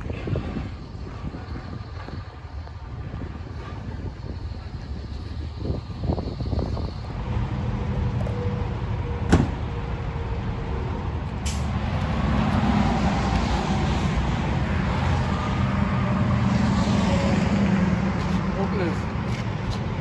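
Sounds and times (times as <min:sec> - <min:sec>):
truck engine running: 0:00.0 - 0:20.0
sharp click: 0:11.4 - 0:11.7.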